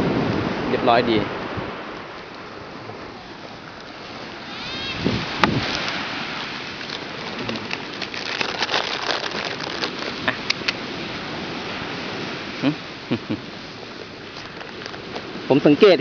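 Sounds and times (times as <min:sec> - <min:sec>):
wind hiss on microphone: 0:00.0 - 0:16.0
phone handling rustles and clicks: 0:14.0 - 0:15.3.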